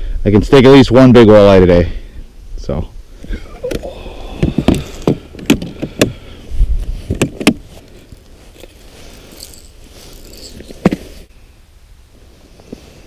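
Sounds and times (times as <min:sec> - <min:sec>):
lures rattling in tackle box: 0:08.1 - 0:10.9.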